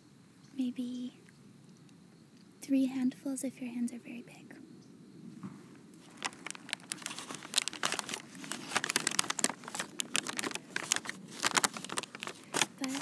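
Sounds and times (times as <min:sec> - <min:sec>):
paper bag crinkling: 0:06.0 - 0:13.0.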